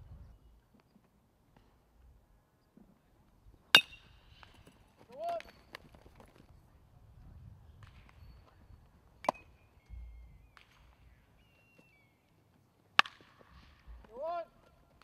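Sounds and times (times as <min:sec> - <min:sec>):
bat hitting baseball: 0:03.7 - 0:04.6, 0:09.2 - 0:09.6, 0:12.9 - 0:14.2.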